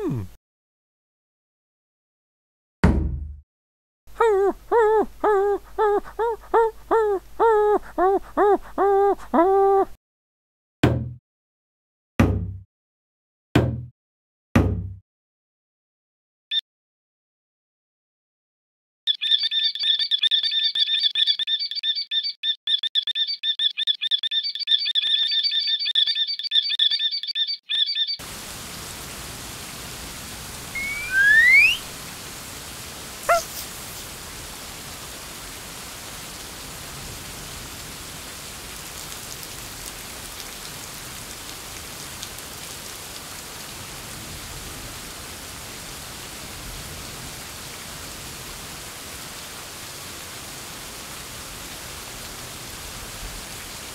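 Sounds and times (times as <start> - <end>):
rushing water hiss: 28.2 - 53.9
loud rising squeal: 30.8 - 31.8.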